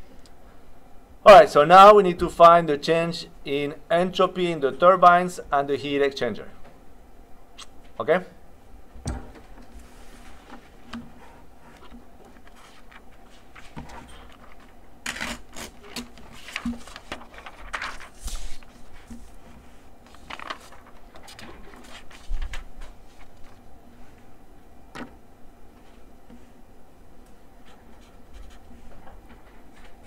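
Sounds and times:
paper rustling: 11.6s - 23.6s.

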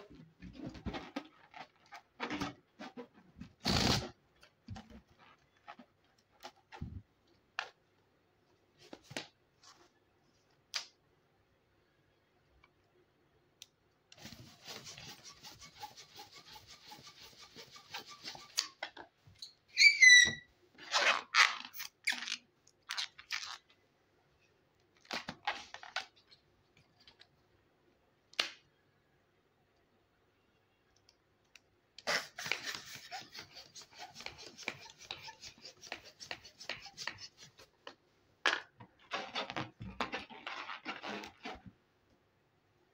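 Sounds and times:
fingers rubbing balloon squeaks: 32.0s - 37.7s.

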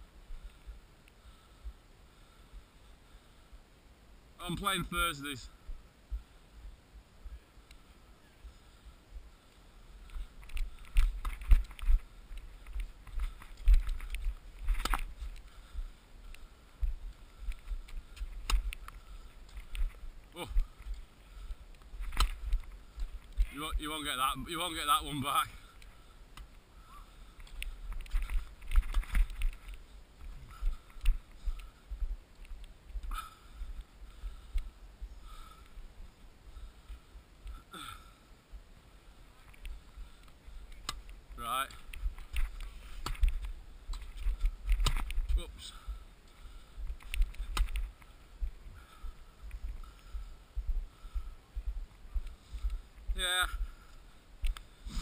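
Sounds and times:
wind rumble on camera: 41.0s - 46.0s.

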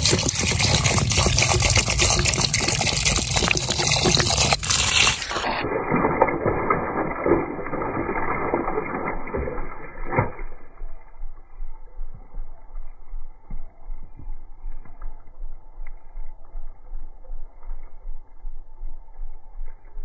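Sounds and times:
low rumbling background: 0.0s - 5.8s
water splashing and trickling: 0.0s - 10.6s.

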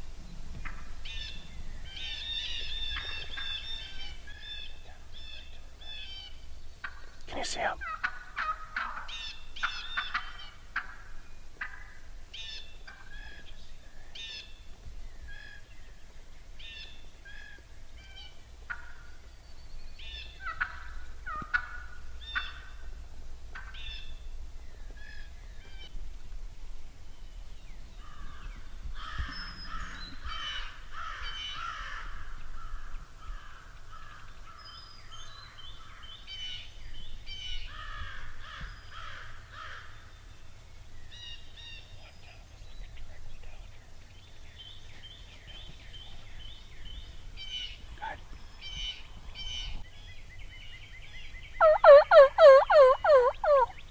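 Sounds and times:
wild turkeys calling: 0.6s - 13.6s, 16.6s - 19.3s, 20.0s - 22.9s, 51.6s - 53.9s.

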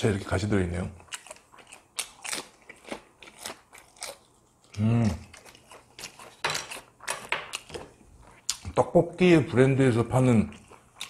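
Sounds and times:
crunching and chewing fried food: 0.7s - 9.0s, 10.0s - 11.0s
person humming: 4.8s - 5.2s.

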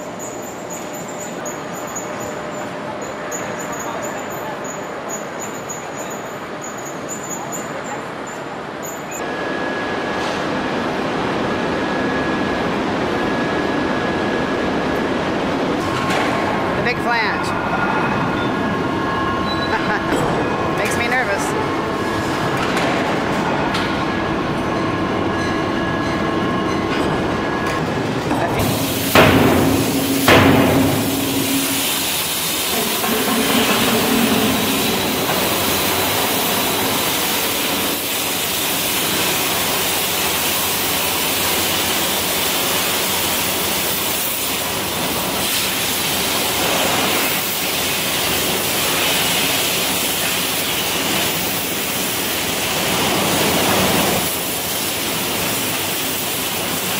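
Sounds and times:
lathe whining: 27.2s - 38.0s
forging hammer blows on steel: 28.5s - 37.4s
steady rushing hiss: 28.6s - 44.7s.

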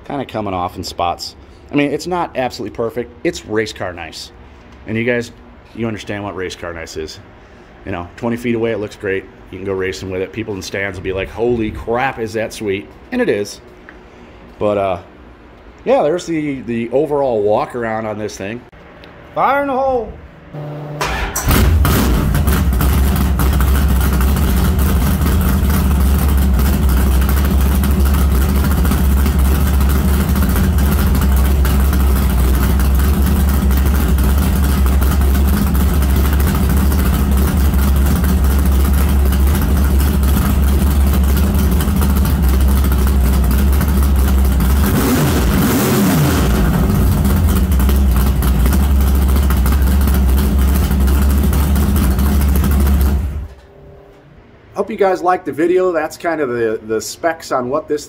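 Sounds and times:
car engine starting and idling: 20.5s - 53.7s
engine revving: 20.6s - 53.5s.

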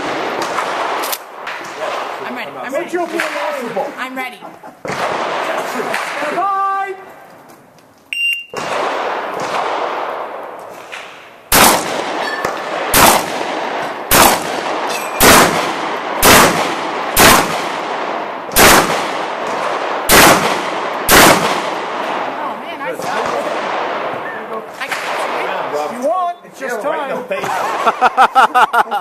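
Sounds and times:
shotgun shots with echo: 0.0s - 2.2s, 4.8s - 6.4s, 8.5s - 24.2s, 24.8s - 25.9s
shot timer beep: 8.1s - 8.6s.

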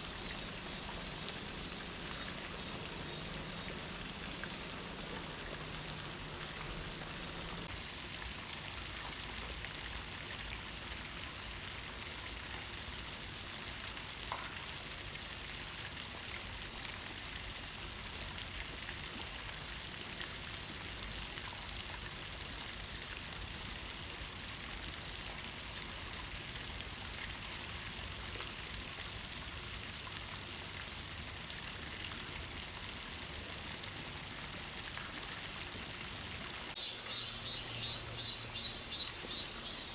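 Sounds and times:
very high chirping: 0.0s - 7.7s, 36.8s - 39.9s
outdoor background hiss: 0.0s - 39.9s.

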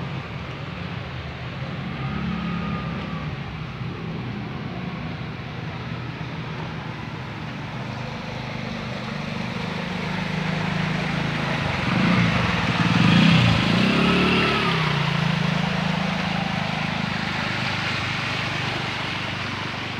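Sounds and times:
water hissing off wheels: 0.0s - 19.9s
motorcycle passing by: 7.9s - 19.9s.

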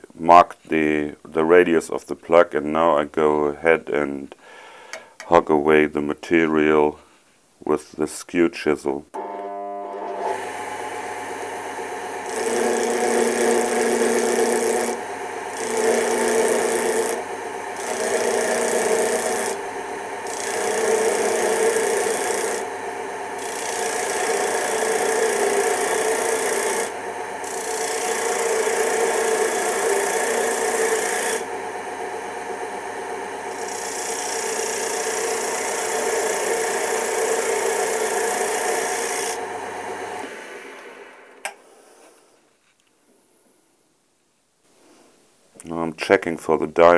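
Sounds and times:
chisel cutting wood on lathe: 9.2s - 42.0s
lathe motor hum: 9.2s - 42.0s.

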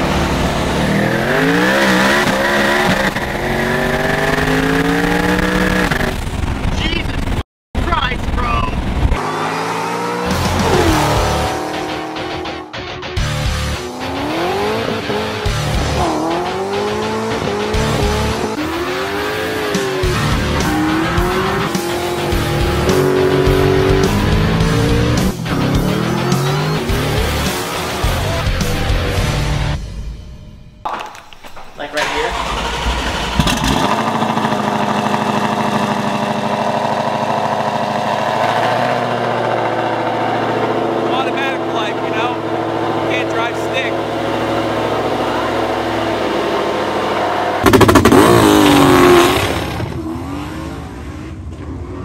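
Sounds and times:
car engines revving: 0.0s - 29.8s, 31.9s - 52.0s
music with heavy bass beat: 10.2s - 30.0s
car engine idling: 31.9s - 38.1s.

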